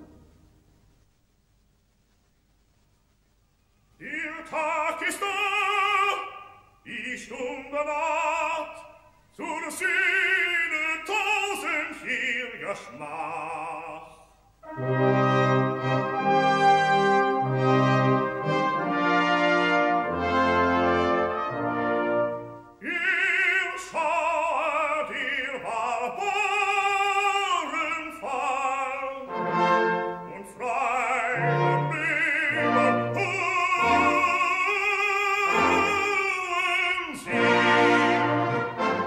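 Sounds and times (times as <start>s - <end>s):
operatic singing: 4.0s - 39.0s
orchestra with brass chords: 14.6s - 22.8s, 29.2s - 34.5s, 35.5s - 36.3s, 37.2s - 39.0s.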